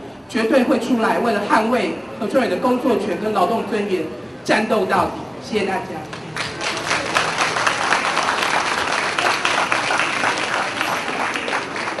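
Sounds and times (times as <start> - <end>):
crowd applauding: 6.1 - 12.0.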